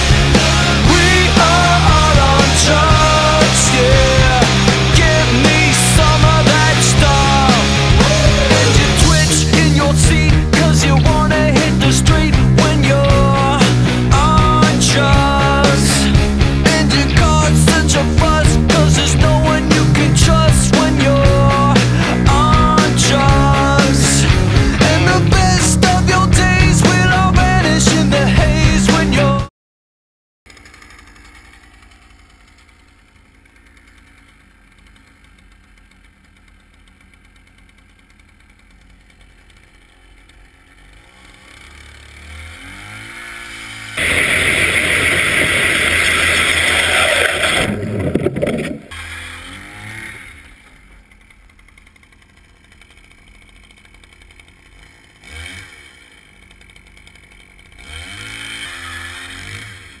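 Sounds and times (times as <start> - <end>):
ice auger engine revving: 0.0 - 29.5, 30.5 - 60.0
loud rushing noise: 44.0 - 48.8.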